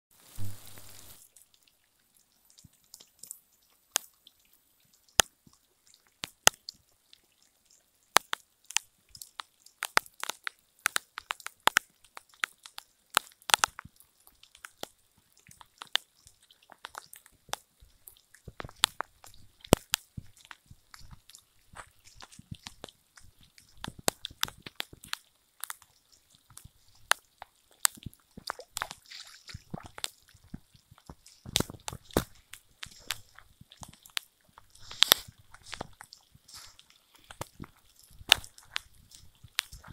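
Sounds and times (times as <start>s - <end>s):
rain falling: 0.1s - 39.9s
raindrops tapping near microphone: 0.1s - 39.9s
footsteps squishing through mud: 14.7s - 39.9s.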